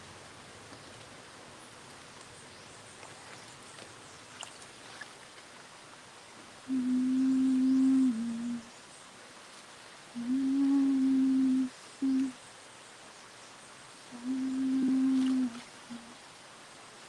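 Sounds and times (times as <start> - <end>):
woman humming: 6.7 - 8.7, 10.2 - 12.4, 14.2 - 16.2.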